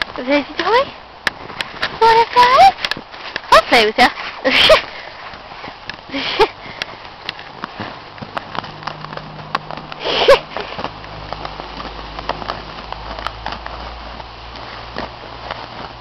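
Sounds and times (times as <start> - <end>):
puppy chewing plastic ball: 6.7 - 16.0.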